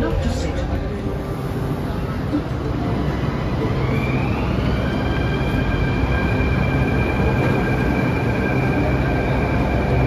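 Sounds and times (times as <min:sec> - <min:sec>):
low rumble of train cars: 0:00.0 - 0:10.0
electric train motor whine: 0:03.0 - 0:10.0.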